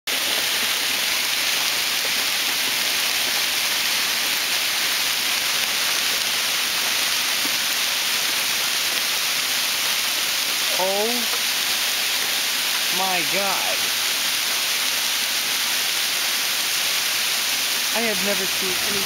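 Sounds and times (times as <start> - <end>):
heavy hail falling: 10.5 - 19.0.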